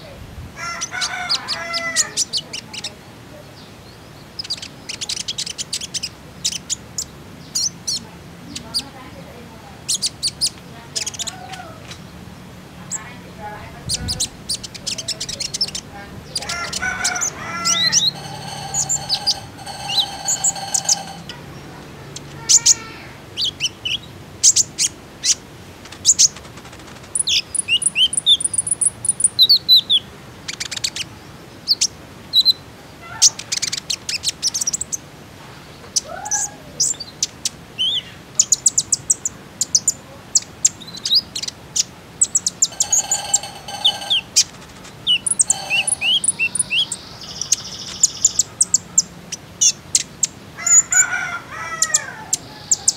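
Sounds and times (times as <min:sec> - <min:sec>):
lower drawn-out bird calls: 0:14.1 - 0:21.8, 0:42.3 - 0:48.1
sunbird high sharp chirps: 0:45.0 - 0:48.5.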